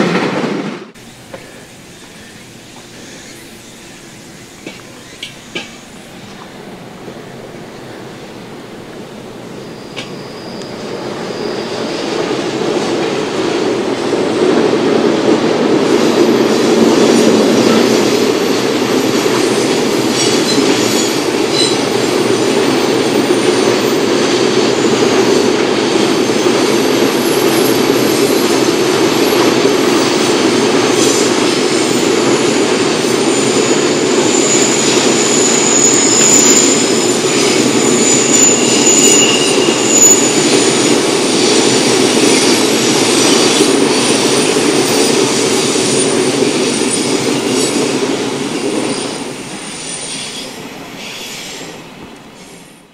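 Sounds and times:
train wheels rolling on rail: 0.0 - 52.9
high-pitched wheel squeals: 9.5 - 12.1, 20.2 - 21.9, 33.2 - 41.8.

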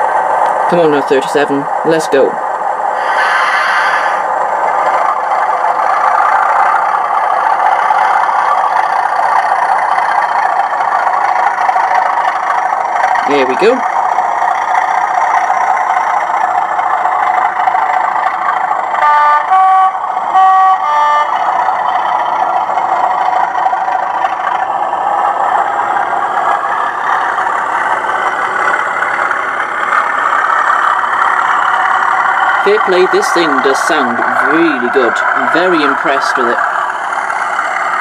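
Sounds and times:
model diesel engine drone: 0.0 - 38.0
two-tone train horn: 19.0 - 21.4.

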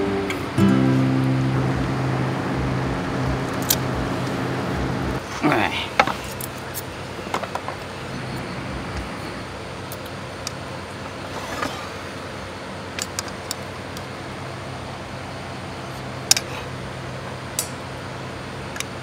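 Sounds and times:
low machine hum: 0.0 - 11.3.

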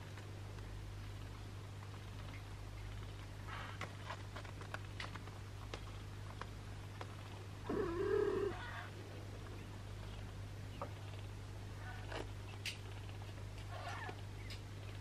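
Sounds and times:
kittens nursing clicks: 0.0 - 7.8, 12.0 - 15.0.

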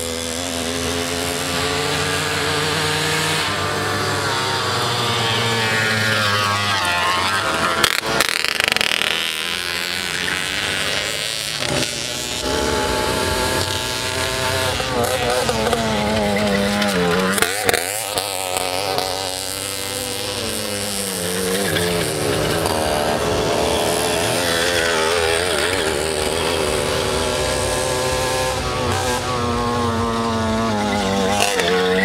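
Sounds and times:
moped engines racing: 0.0 - 32.0.

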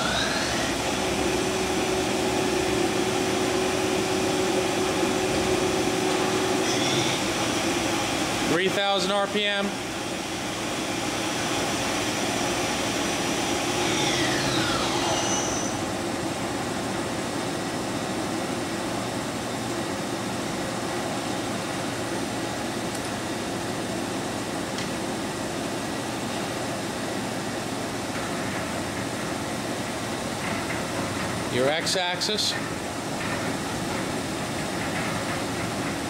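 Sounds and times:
machine spindle whining down: 0.0 - 7.6, 13.4 - 15.8
machine running hum: 0.0 - 36.0.

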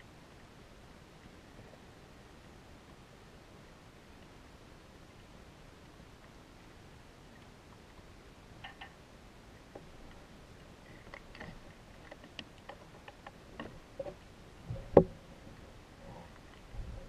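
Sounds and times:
underwater clicks and ticks: 5.8 - 6.4, 7.3 - 9.0, 9.6 - 17.0.

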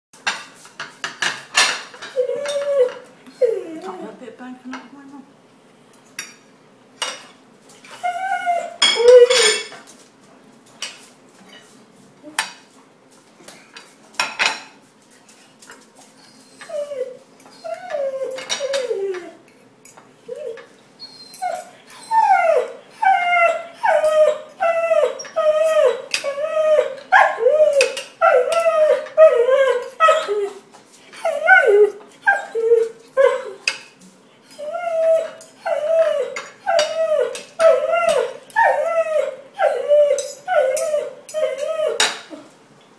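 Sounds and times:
cutlery clinking on plates: 0.2 - 3.1, 6.0 - 7.3, 8.8 - 9.9, 13.8 - 14.8, 18.2 - 21.8, 27.6 - 30.5, 32.6 - 38.3, 39.9 - 42.3
dog whining: 2.0 - 4.1, 7.9 - 9.7, 16.2 - 19.5, 20.2 - 33.7, 34.5 - 42.6.

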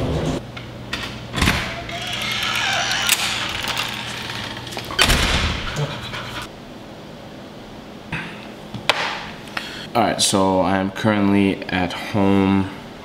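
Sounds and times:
front door shutting: 1.3 - 6.0
dog panting: 5.4 - 6.5.

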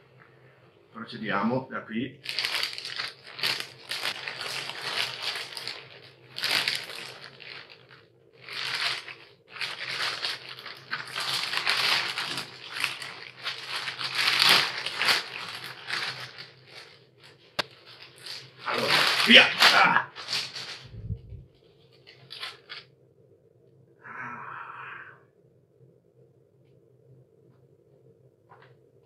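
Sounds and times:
packaging crinkling: 2.2 - 21.0, 21.8 - 22.8.

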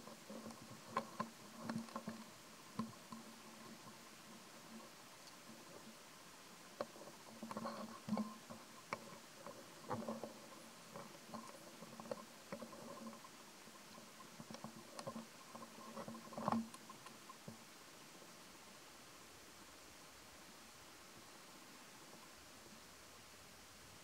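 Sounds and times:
faint clicks and crackles: 0.0 - 18.8
faint steady hum: 0.0 - 24.0.

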